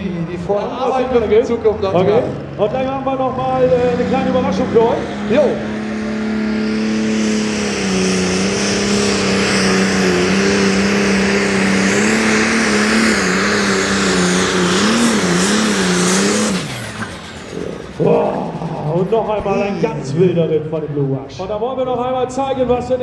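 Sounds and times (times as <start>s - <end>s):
diesel engine revving high: 0.0s - 23.0s.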